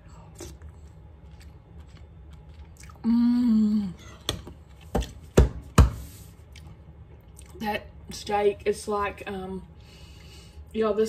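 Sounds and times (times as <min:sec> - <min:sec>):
woman humming mmm: 0:03.0 - 0:04.2.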